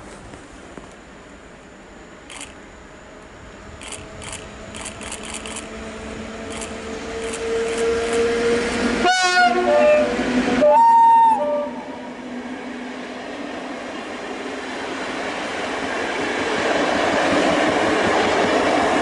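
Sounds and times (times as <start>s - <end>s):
electric train running: 2.3s - 2.6s, 3.6s - 9.0s
locomotive horn: 7.4s - 12.0s.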